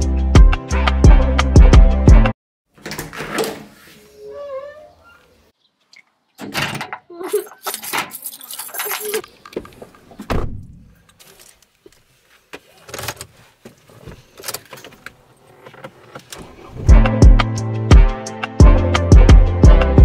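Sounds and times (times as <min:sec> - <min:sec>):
keys jangling in a lock: 0:07.5 - 0:09.3
music with steady beat: 0:16.9 - 0:20.0.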